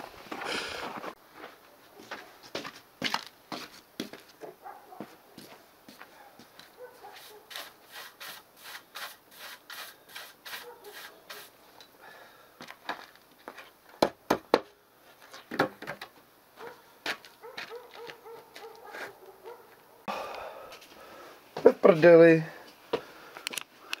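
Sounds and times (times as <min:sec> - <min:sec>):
broom sweeping snow: 0:07.1 - 0:11.7.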